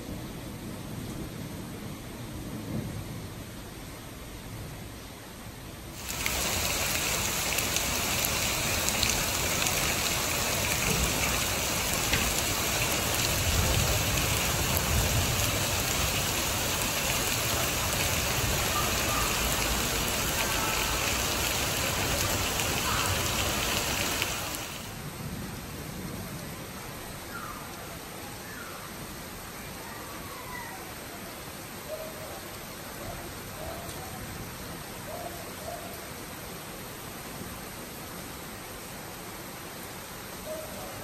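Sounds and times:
heavy rain pouring: 0:05.8 - 0:31.8.

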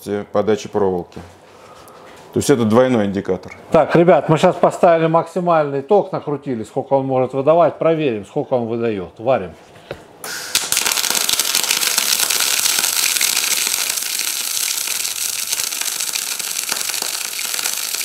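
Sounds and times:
welding arc crackling: 0:10.2 - 0:18.0.

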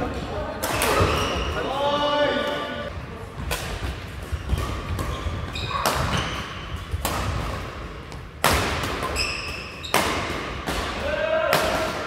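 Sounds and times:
shoes squeaking on floor: 0:00.9 - 0:01.7, 0:04.3 - 0:07.0, 0:09.0 - 0:10.2.

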